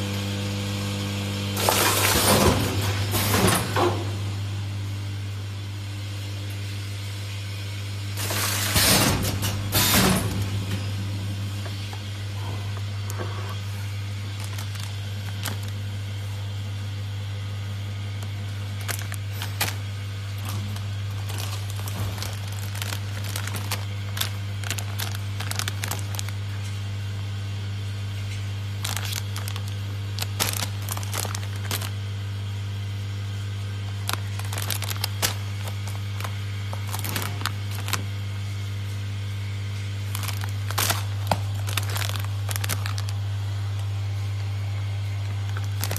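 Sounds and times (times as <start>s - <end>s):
packing machinery humming: 0.0s - 45.9s
plastic pouches crackling: 13.0s - 16.6s, 18.1s - 26.7s, 28.6s - 32.2s, 33.8s - 38.4s, 40.0s - 44.0s, 45.2s - 45.9s.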